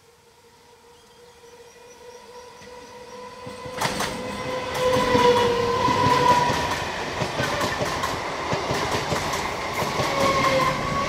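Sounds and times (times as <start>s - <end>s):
train wheels clattering: 3.4s - 11.0s.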